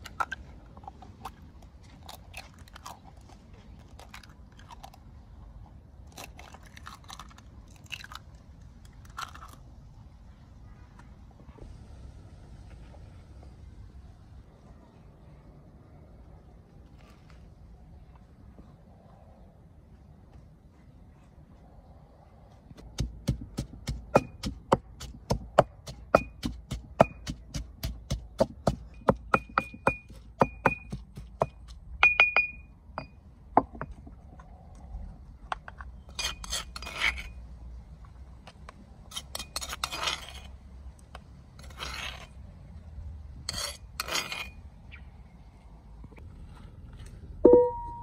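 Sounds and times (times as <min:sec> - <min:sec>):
scraping in a bowl: 0:36.1 - 0:37.4, 0:39.1 - 0:40.6, 0:41.6 - 0:42.4, 0:43.5 - 0:44.6.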